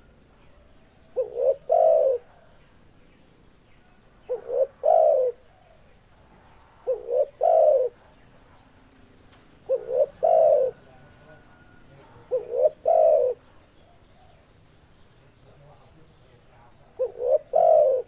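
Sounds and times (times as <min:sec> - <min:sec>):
dove cooing: 0:00.0 - 0:02.6, 0:04.2 - 0:05.9, 0:06.7 - 0:08.1, 0:09.6 - 0:14.5, 0:16.8 - 0:18.0.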